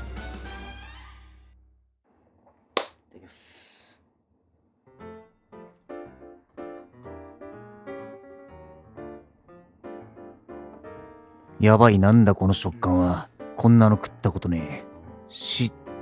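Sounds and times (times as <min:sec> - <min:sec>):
piano music: 0:04.9 - 0:16.0.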